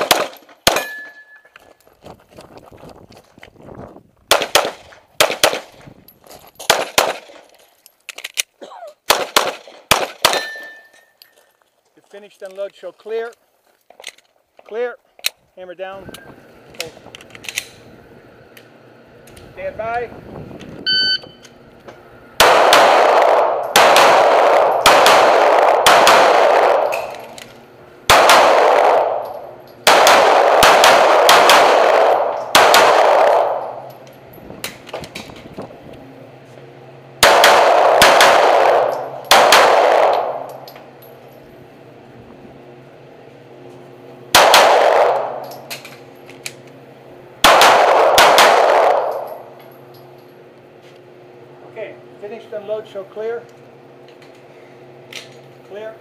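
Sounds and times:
shot timer beep: 20.8s - 21.4s
pistol shots echoing indoors: 28.1s - 33.8s, 37.2s - 40.5s, 47.5s - 49.3s.

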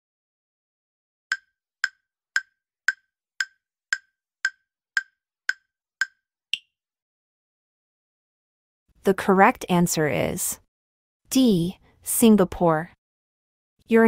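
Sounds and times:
countdown timer ticks: 1.3s - 6.7s.

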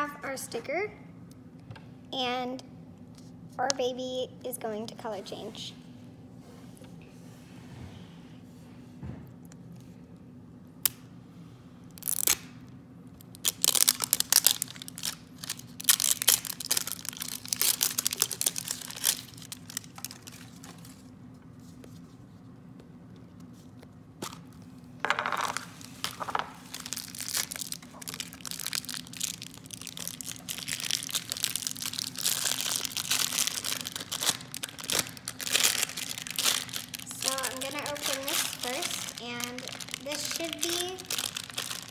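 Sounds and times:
wrappers crinkling and tearing: 12.0s - 22.3s, 25.6s - 41.9s.

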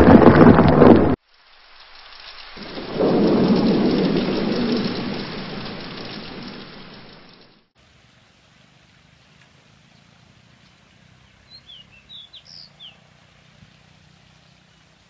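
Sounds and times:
deep thunder rumble: 0.0s - 1.2s, 2.6s - 7.7s
rain and thunder burst: 0.0s - 1.2s, 2.6s - 7.6s.

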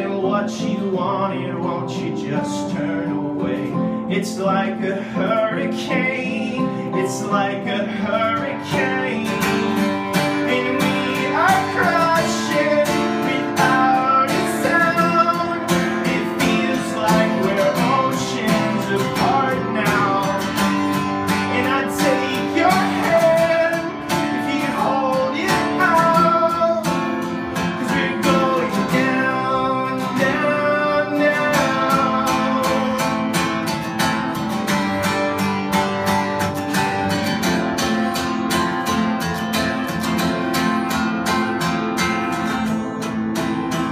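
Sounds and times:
man singing: 0.0s - 33.9s
acoustic guitar strumming: 0.0s - 43.9s.

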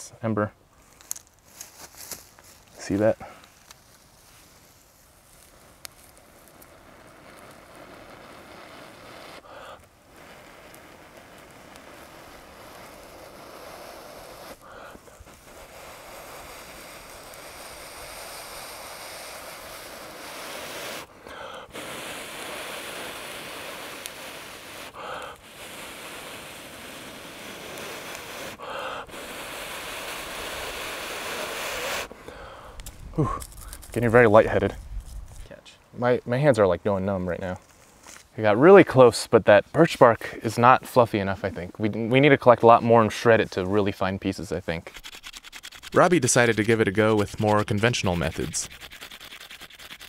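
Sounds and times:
person blowing steady breaths: 5.4s - 33.9s
gasped inhale: 9.4s - 9.8s, 14.6s - 15.1s, 21.2s - 21.8s, 24.9s - 25.7s, 28.6s - 29.4s, 32.2s - 33.8s.

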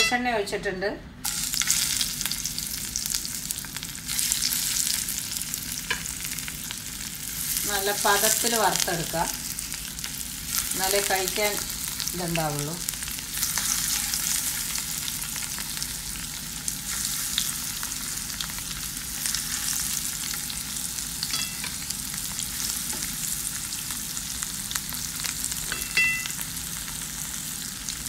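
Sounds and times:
fish sizzling in a pan: 1.2s - 28.0s
ringing clink: 21.3s - 21.7s, 25.7s - 26.4s.

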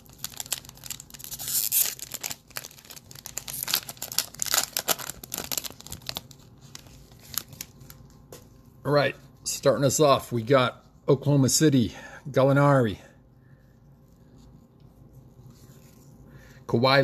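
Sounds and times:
wrapper tearing and crinkling: 0.0s - 8.1s.

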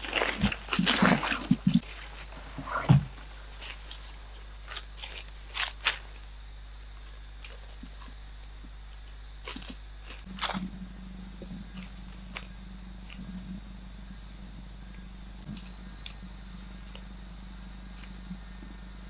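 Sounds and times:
footsteps on dry leaves: 0.0s - 2.6s, 9.4s - 19.0s
leaves brushing against legs: 0.0s - 6.3s.

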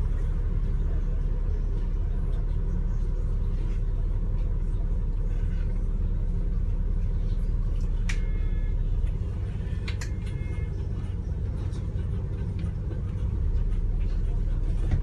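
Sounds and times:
bus engine rumbling: 0.0s - 15.0s
faint brief tone: 8.0s - 9.1s, 9.7s - 11.2s.

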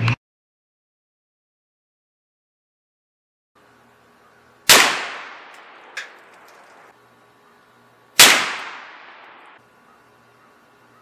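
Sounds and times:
rifle shots with echo: 4.7s - 6.0s, 8.2s - 9.6s.

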